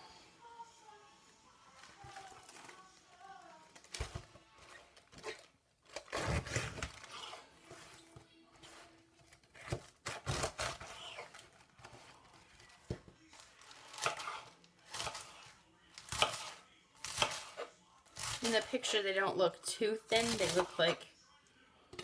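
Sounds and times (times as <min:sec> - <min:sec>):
cabbage leaves tearing and crunching: 0:03.8 - 0:08.0, 0:09.5 - 0:12.1, 0:20.2 - 0:21.0.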